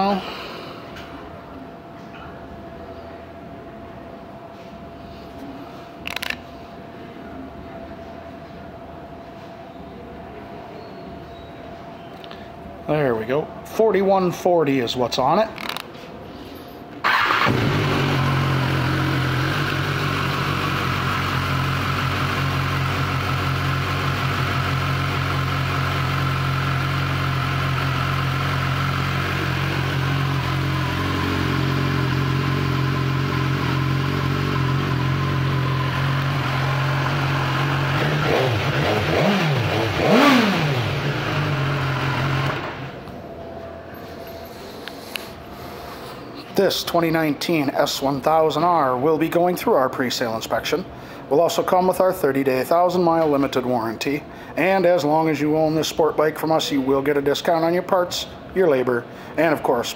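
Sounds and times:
motorcycle engine idling: 0:17.1 - 0:43.0
motorcycle engine revving: 0:17.1 - 0:43.0.

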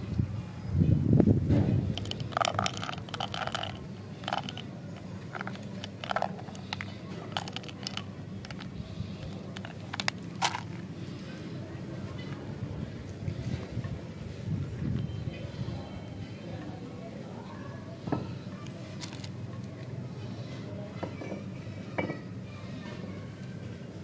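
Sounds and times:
handling rumble: 0:01.2 - 0:15.9.

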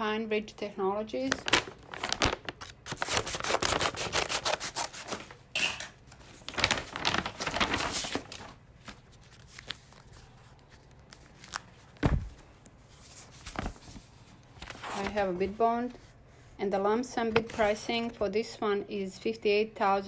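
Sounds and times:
paper rustling and tearing: 0:01.3 - 0:05.4, 0:06.2 - 0:15.3.

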